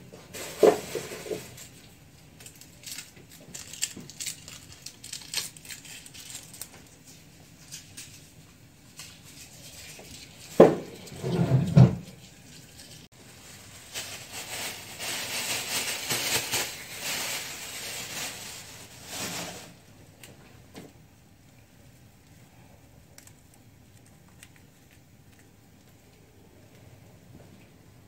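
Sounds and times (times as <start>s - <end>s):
plastic bag crinkling: 0.2s - 10.4s, 12.5s - 19.8s.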